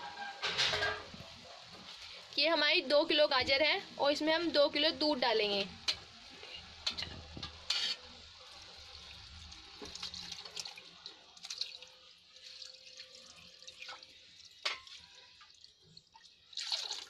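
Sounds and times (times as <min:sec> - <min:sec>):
milk pouring and splashing: 0:08.5 - 0:17.0.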